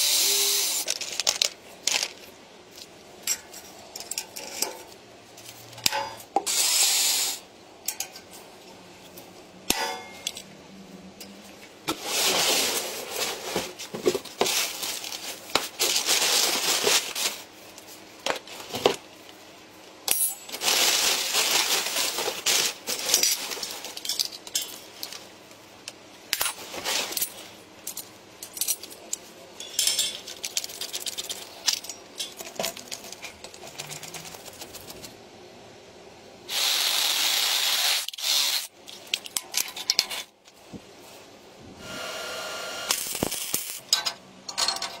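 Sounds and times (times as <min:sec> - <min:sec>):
metal parts clinking: 0:23.0 - 0:25.2, 0:26.4 - 0:34.2, 0:38.9 - 0:40.3, 0:43.1 - 0:45.0.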